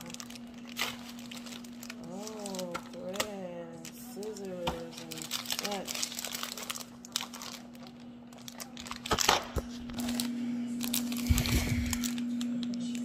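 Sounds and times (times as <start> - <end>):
plastic wrapping crinkling: 0.0 - 13.0.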